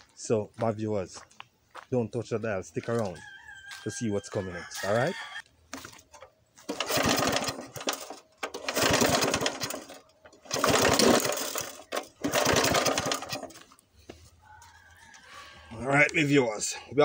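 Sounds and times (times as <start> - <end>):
lawn mower engine chugging: 5.8 - 14.2.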